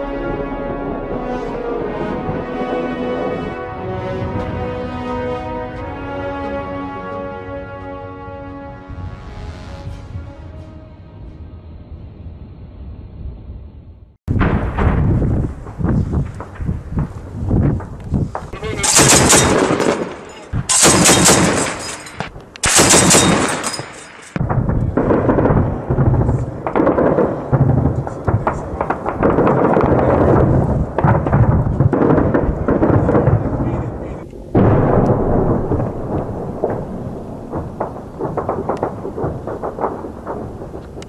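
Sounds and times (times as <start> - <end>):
explosions: 0.0 - 6.7, 14.3 - 41.0
low rumbling: 0.0 - 41.0
machine gun burst: 18.7 - 24.4
distant gunfire cracks: 35.8 - 41.0.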